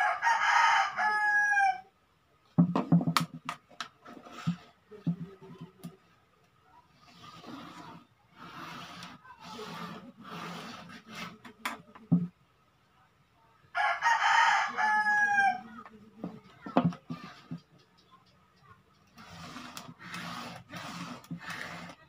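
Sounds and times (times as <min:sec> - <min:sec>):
rooster crowing: 0:00.0 - 0:01.9, 0:13.8 - 0:15.7
knocks on tabletop: 0:02.6 - 0:03.6
marker scratching on plastic pipe: 0:04.0 - 0:05.9, 0:06.9 - 0:12.2, 0:16.8 - 0:22.0.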